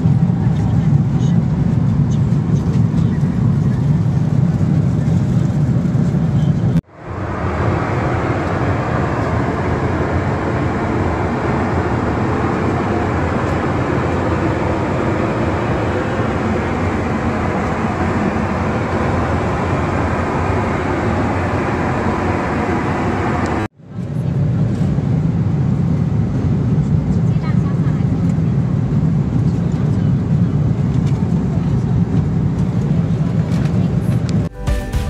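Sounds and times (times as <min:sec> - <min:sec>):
airliner cabin noise: 0:00.0 - 0:34.5.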